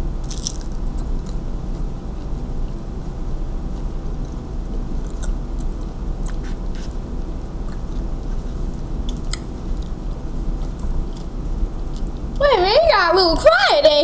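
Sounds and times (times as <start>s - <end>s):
low hum: 0.0s - 14.0s
crunchy taco shell chewing: 0.2s - 2.5s, 3.6s - 12.4s.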